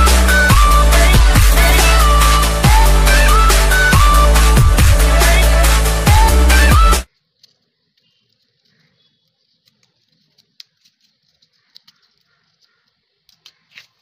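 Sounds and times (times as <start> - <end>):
electronic music with heavy beat: 0.0 - 7.1
light ticks of pencil: 7.1 - 14.0
paper rustling: 7.1 - 14.0.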